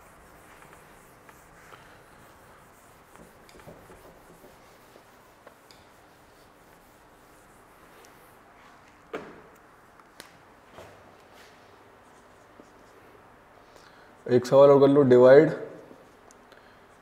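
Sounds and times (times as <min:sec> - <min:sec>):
eraser rubbing whiteboard: 0:00.0 - 0:08.4.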